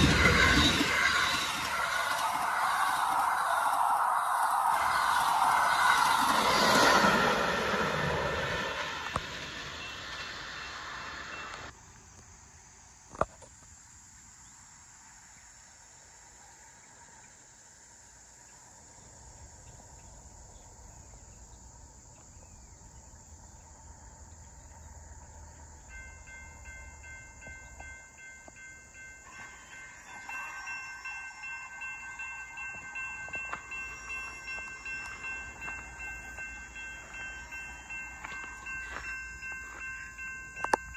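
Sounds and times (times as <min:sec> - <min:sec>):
train wheels clattering: 0:00.0 - 0:11.7
faint high ringing tone: 0:24.4 - 0:40.9.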